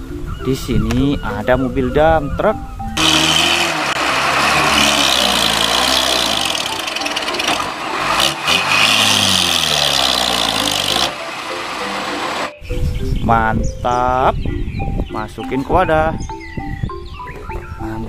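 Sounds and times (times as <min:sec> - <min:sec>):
truck diesel engine revving: 0:03.0 - 0:12.6.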